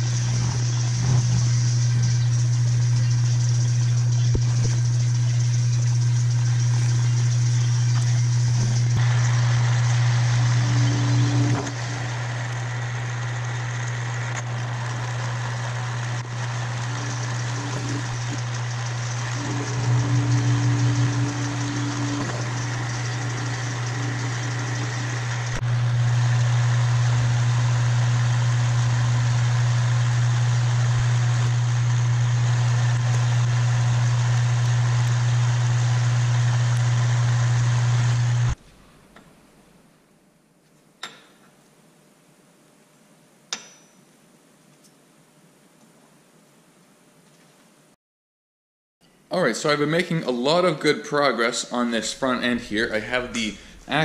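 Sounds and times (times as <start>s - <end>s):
metal lathe humming: 0.0s - 38.6s.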